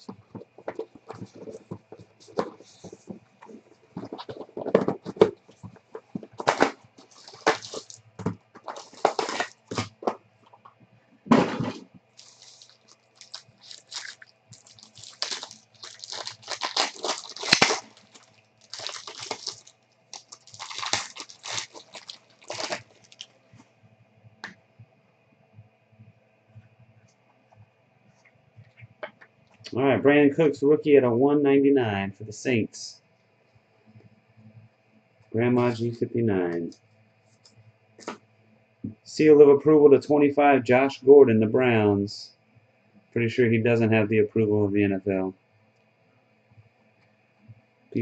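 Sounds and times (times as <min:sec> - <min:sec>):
plastic wrapping crinkling: 0:00.0 - 0:10.7, 0:11.7 - 0:23.4
cardboard packaging tearing: 0:06.2 - 0:08.0, 0:08.6 - 0:10.2, 0:12.2 - 0:23.3.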